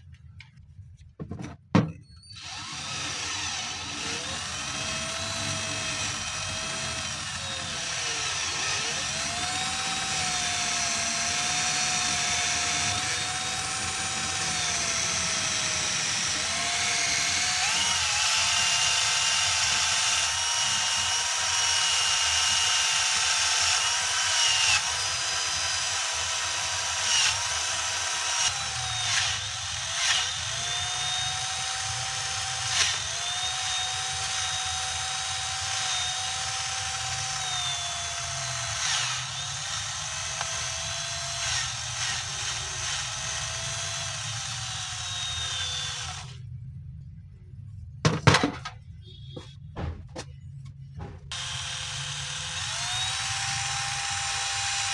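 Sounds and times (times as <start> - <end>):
cordless drill whining: 2.1 - 46.4, 51.3 - 54.9.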